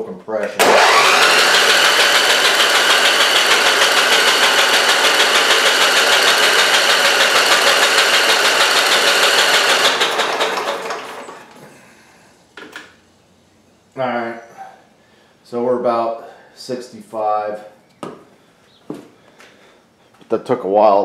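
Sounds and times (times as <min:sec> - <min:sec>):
electric starter cranking engine: 0:00.6 - 0:11.7.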